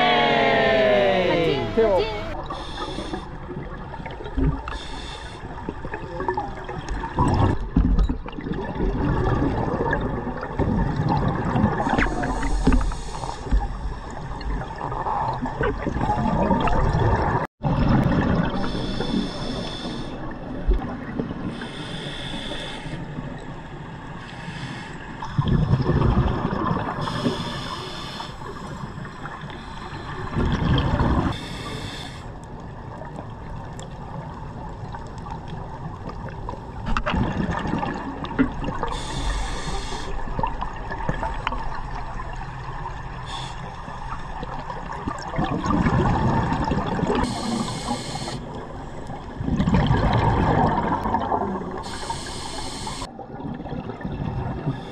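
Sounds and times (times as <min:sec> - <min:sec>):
steady watery wash: 0:01.5 - 0:54.9
hissing regulator inhale: 0:02.5 - 0:03.4, 0:04.7 - 0:05.5, 0:12.0 - 0:13.6, 0:18.6 - 0:20.2, 0:21.5 - 0:23.2, 0:24.2 - 0:25.1, 0:27.0 - 0:30.4, 0:31.3 - 0:32.3, 0:38.9 - 0:40.2, 0:43.2 - 0:43.9, 0:47.2 - 0:49.2, 0:51.8 - 0:53.1
rush of exhaled bubbles: 0:05.8 - 0:13.1, 0:14.3 - 0:19.0, 0:25.2 - 0:27.4, 0:30.2 - 0:31.4, 0:36.9 - 0:39.4, 0:44.3 - 0:47.6, 0:48.4 - 0:52.1, 0:53.0 - 0:54.9.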